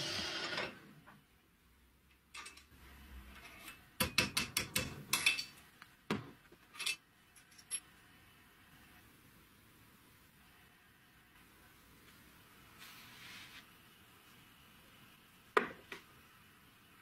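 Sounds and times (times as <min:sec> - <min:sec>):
small metal parts clinking: 0:06.7 - 0:07.9.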